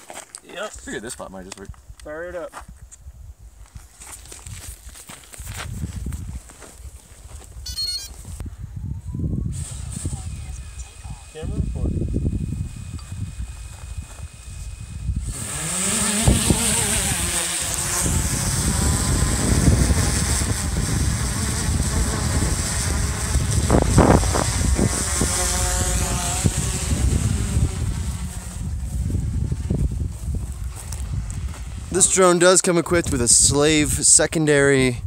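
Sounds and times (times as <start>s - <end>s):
drone propellers buzzing: 7.5s - 32.4s.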